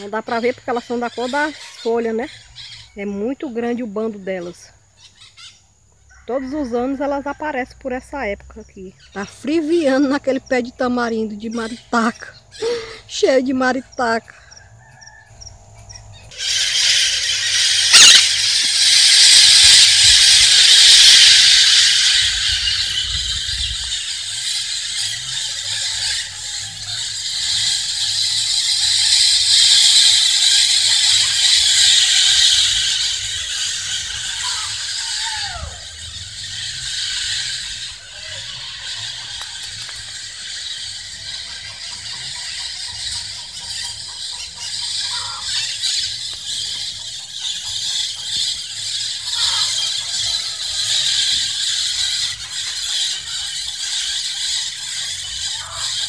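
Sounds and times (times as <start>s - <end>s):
parrots screeching: 0.4s - 3.0s, 16.1s - 56.0s.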